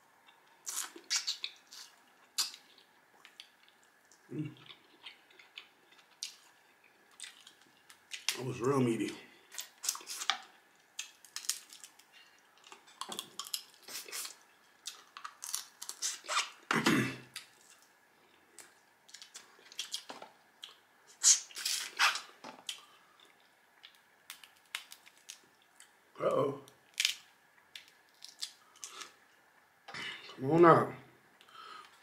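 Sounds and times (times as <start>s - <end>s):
crab shells cracking: 7.1s - 8.4s, 9.5s - 16.4s, 23.8s - 25.5s, 26.7s - 29.1s.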